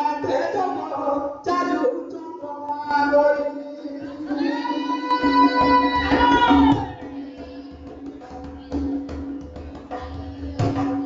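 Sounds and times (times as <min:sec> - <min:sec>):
man singing through microphone: 0:00.0 - 0:07.2.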